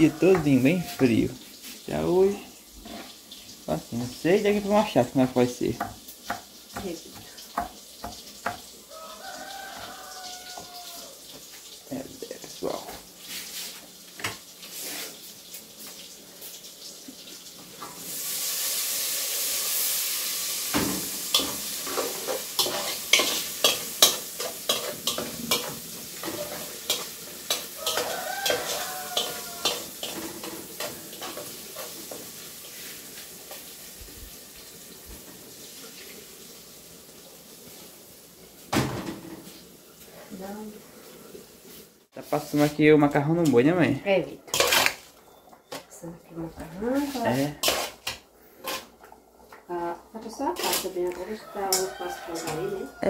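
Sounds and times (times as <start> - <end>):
food sizzling in a hot pan: 0.0 - 53.0
spoon knocking against pan: 5.8 - 8.7, 20.7 - 30.9.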